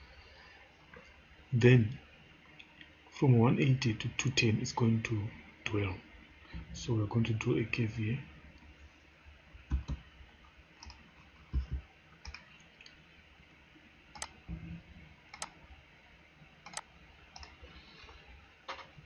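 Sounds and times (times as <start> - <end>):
computer mouse clicking: 9.7 - 10.1, 10.8 - 13.0, 14.1 - 14.4, 15.3 - 15.6, 16.6 - 17.6
faint low thumps: 11.5 - 11.8.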